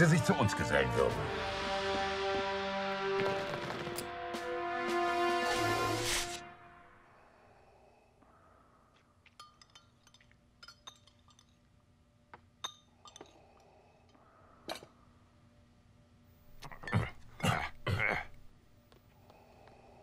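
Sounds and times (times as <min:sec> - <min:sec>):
faint steady hum: 0:06.6 - 0:20.0
glasses and tableware clinking: 0:09.3 - 0:11.6.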